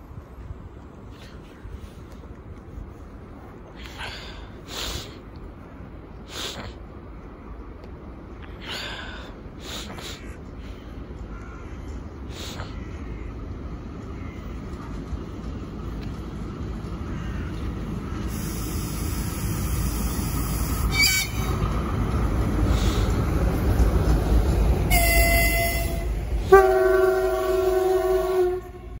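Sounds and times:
train wheels rumbling on rails: 0.0 - 29.0
locomotive horn blasts: 20.9 - 21.5, 24.9 - 29.0.

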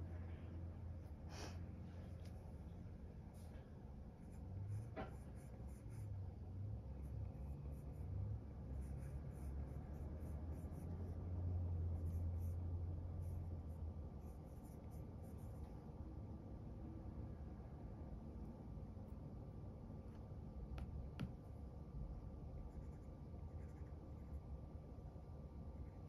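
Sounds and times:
faint low rumble: 0.0 - 26.0.

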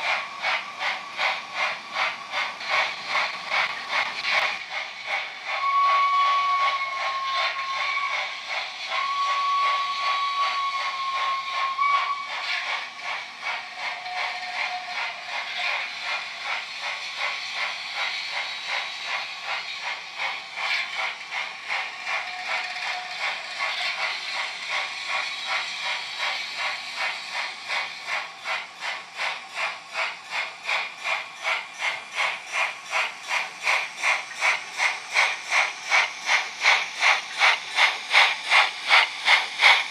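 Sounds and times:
steam chuffs and hiss: 0.0 - 39.9
steam whistle: 5.6 - 8.3, 9.0 - 12.4.

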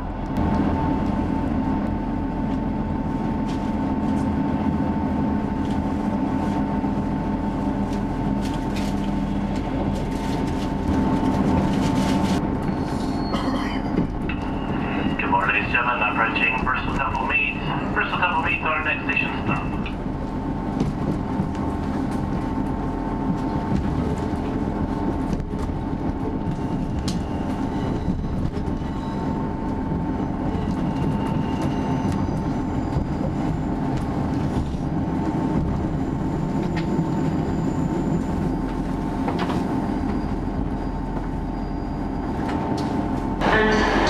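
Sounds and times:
train rumble: 0.0 - 44.0
steady hum: 14.2 - 27.0.

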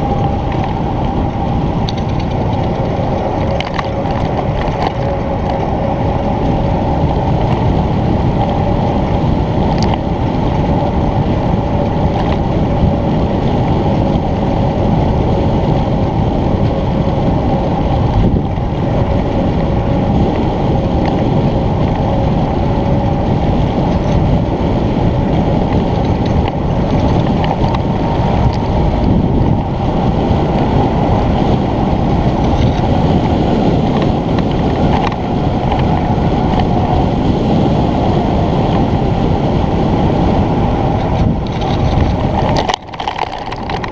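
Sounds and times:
steady tone: 0.0 - 7.0
wind rushing over microphone: 0.0 - 43.9.

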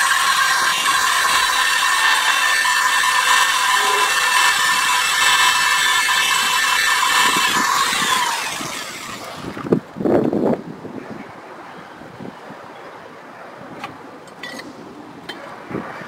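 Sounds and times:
power drill whining: 0.0 - 9.8.

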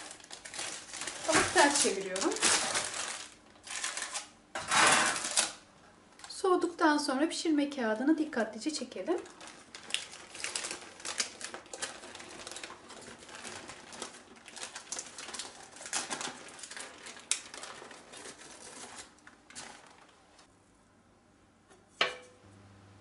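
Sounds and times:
parchment paper crinkling: 0.0 - 4.3, 8.8 - 20.5.

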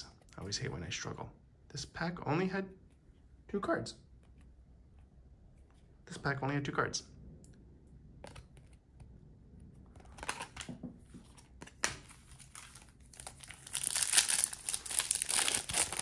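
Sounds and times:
plastic wrapper crinkling: 11.8 - 16.0.

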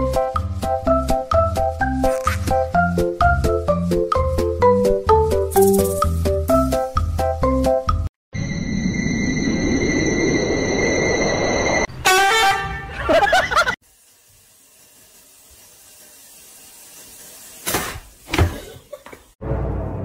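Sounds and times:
loud honking horn blare: 11.9 - 13.0.

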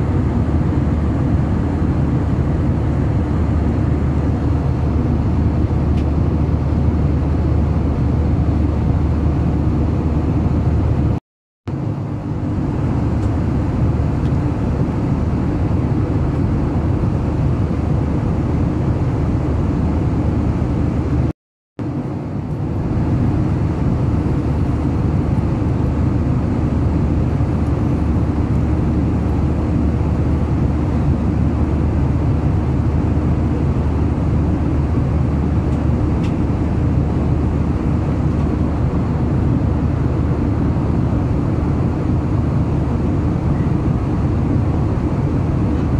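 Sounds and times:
airliner engine drone: 0.0 - 45.9.

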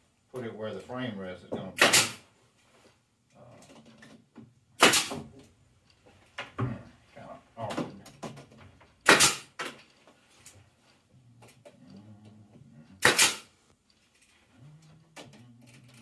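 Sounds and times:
pneumatic stapler shots: 1.8 - 2.2, 4.8 - 5.2, 9.0 - 9.7, 13.0 - 13.5.

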